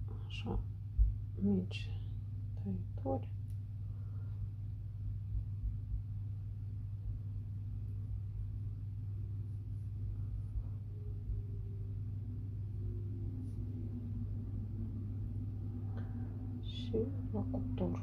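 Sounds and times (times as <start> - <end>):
steady low hum: 0.0 - 18.0
faint wavering tones: 1.6 - 18.0
soft low bumps: 4.7 - 18.0.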